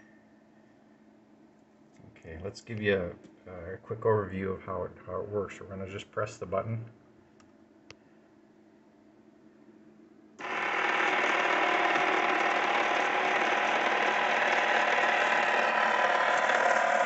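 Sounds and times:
gear motor whirring: 0:10.4 - 0:17.0.

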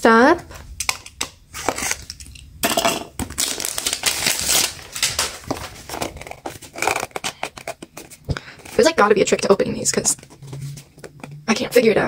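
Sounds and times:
cellophane crinkling: 0:03.2 - 0:11.4.

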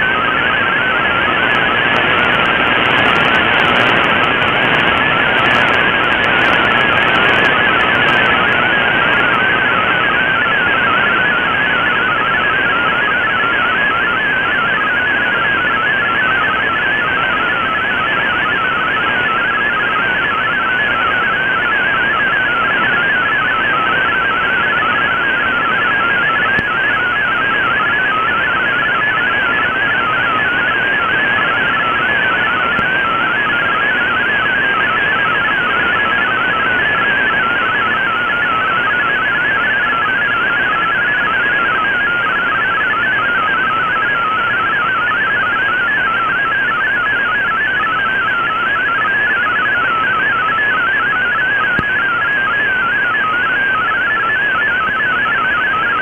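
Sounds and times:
radio hiss: 0:01.4 - 0:10.0.

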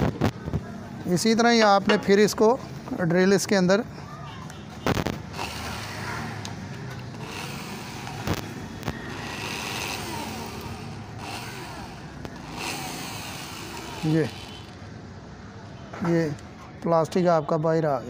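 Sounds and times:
electric drill boring plastic: 0:05.3 - 0:06.5, 0:07.1 - 0:14.8.

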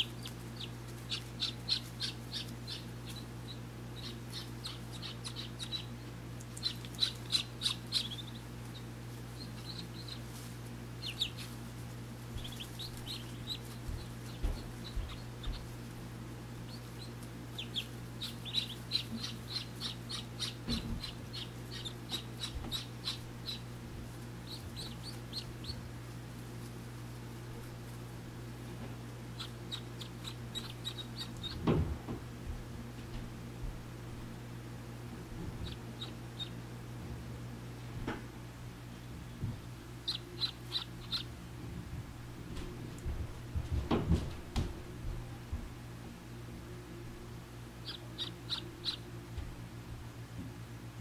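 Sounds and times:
ducklings peeping: 0:00.0 - 0:32.1, 0:35.4 - 0:36.8, 0:39.8 - 0:41.5, 0:47.8 - 0:49.4.

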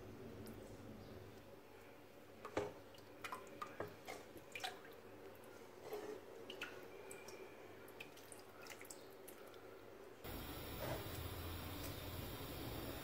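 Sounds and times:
broth dripping and splashing: 0:02.4 - 0:05.6, 0:06.4 - 0:09.7
faint steady hum: 0:06.4 - 0:13.0.

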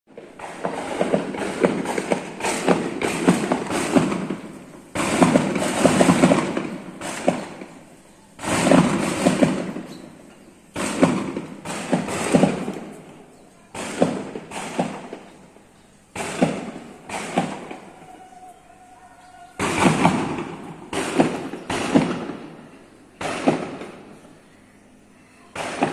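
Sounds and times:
gunfire bursts: 0:00.2 - 0:10.1, 0:10.7 - 0:13.1, 0:13.7 - 0:15.4, 0:16.1 - 0:18.0, 0:19.5 - 0:22.6, 0:23.2 - 0:24.1, 0:25.6 - 0:25.9.

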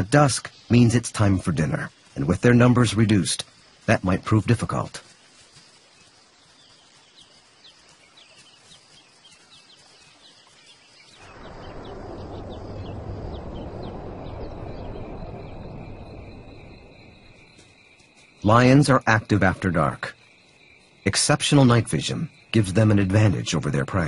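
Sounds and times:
bird chirping: 0:00.0 - 0:24.0
faint high insect hum: 0:00.0 - 0:24.0
insect trilling: 0:00.0 - 0:24.0
rushing noise with low rumble: 0:11.1 - 0:17.6.

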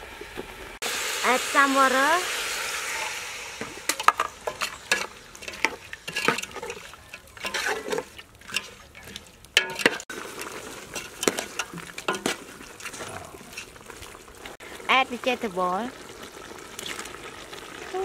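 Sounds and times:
metal spoon stirring in pot: 0:03.0 - 0:14.5
spoon clanking against pot: 0:03.9 - 0:10.0, 0:11.0 - 0:12.4.

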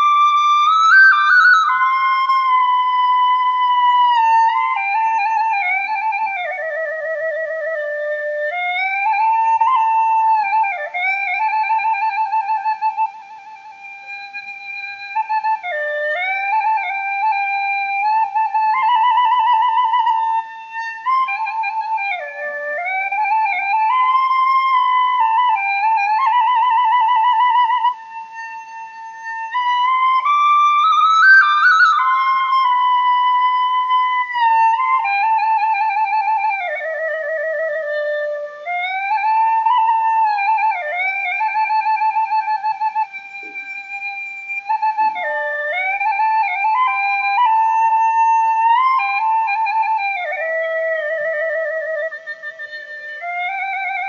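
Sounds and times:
flute-like slow melody: 0:00.0 - 0:54.0.

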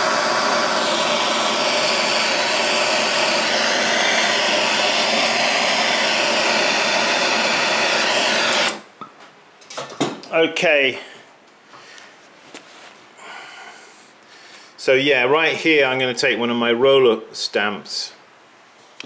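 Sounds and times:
blowtorch flame hissing: 0:00.0 - 0:08.8.

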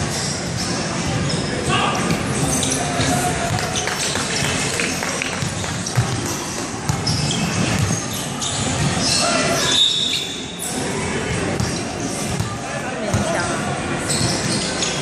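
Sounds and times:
basketball bouncing on wooden court: 0:05.4 - 0:08.0.

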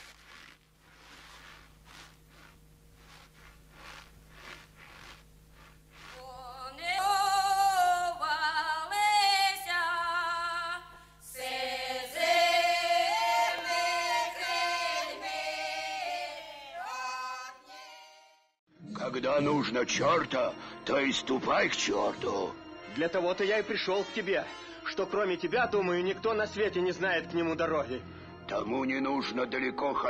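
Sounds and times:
person singing unaccompanied: 0:06.2 - 0:18.1.

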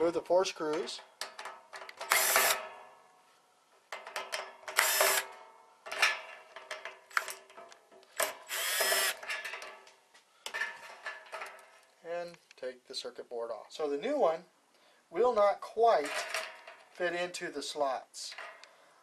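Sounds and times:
power drill backing out screws: 0:01.9 - 0:02.6, 0:04.7 - 0:05.3, 0:08.2 - 0:09.3.

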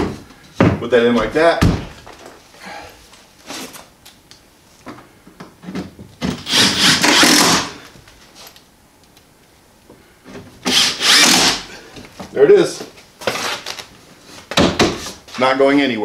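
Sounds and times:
cordless drill driving screw: 0:06.4 - 0:07.7, 0:10.7 - 0:11.7.

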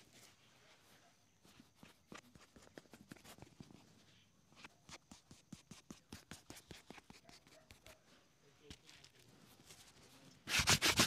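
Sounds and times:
taps and rubbing on leather: 0:04.6 - 0:08.0.

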